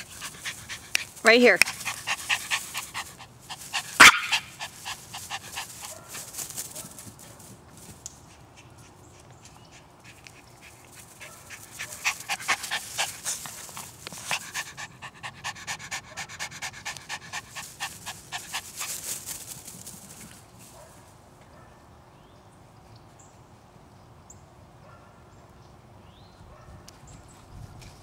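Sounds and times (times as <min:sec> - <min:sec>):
dog panting: 0:00.0 - 0:06.8, 0:08.3 - 0:19.5.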